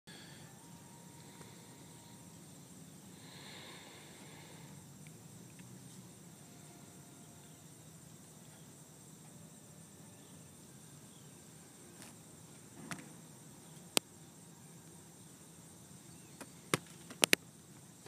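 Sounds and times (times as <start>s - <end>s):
high insect drone: 0.1s - 18.0s.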